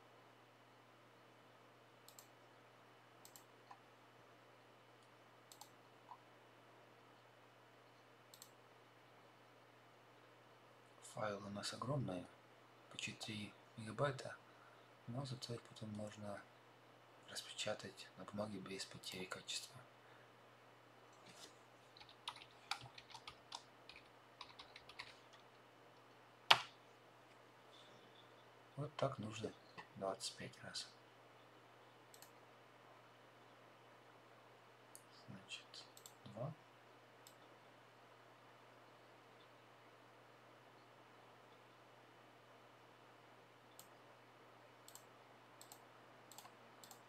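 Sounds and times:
faint steady hum: 0.0s - 47.0s
computer mouse clicks: 2.0s - 2.4s, 3.2s - 3.9s, 5.0s - 6.2s, 8.3s - 8.6s, 21.1s - 26.8s, 32.1s - 32.4s, 35.9s - 36.4s, 37.2s - 37.5s, 43.7s - 44.0s, 44.8s - 47.0s.

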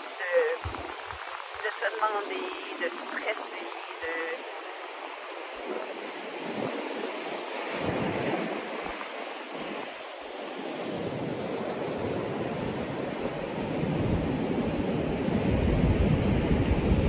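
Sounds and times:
surf washing onto beach: 0.0s - 17.0s
wind buffeting microphone: 0.0s - 17.0s.

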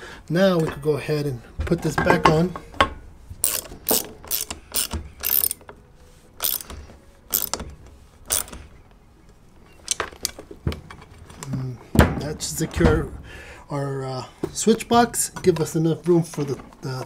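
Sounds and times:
hand ratchet clicking: 3.4s - 5.6s, 6.4s - 7.7s, 8.3s - 8.6s.

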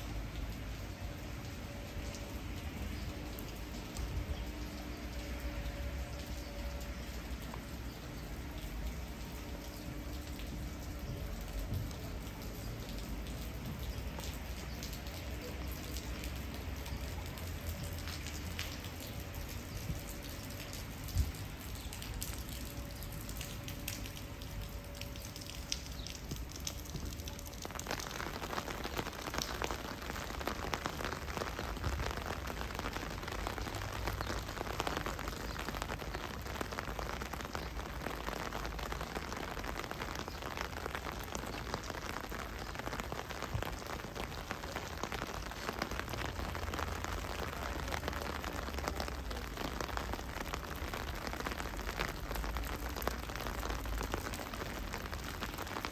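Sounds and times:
rain pattering on hard surfaces: 0.0s - 55.9s.

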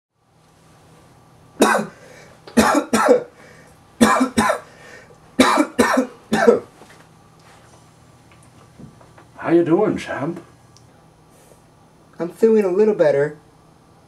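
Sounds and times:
man coughing: 1.6s - 2.0s, 2.6s - 3.3s, 4.0s - 4.7s, 5.4s - 6.7s.

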